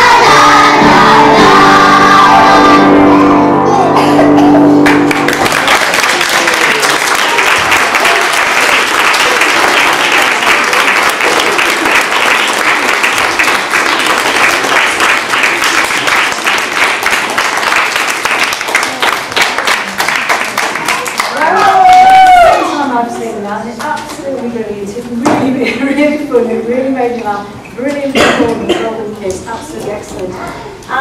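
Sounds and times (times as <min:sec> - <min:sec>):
audience clapping: 0:04.8 - 0:22.4.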